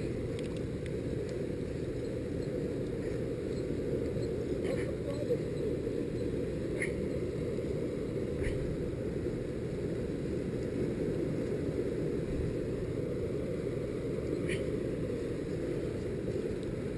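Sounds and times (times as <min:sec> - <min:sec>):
faint ticks: 0:00.0 - 0:05.2, 0:14.2 - 0:16.9.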